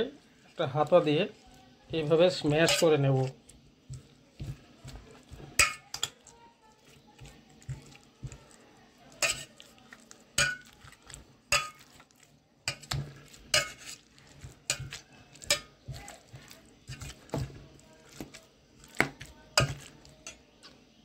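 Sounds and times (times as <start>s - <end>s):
ladle scraping steel bowl: 2.3s - 3.1s, 9.2s - 9.6s, 11.5s - 17.5s.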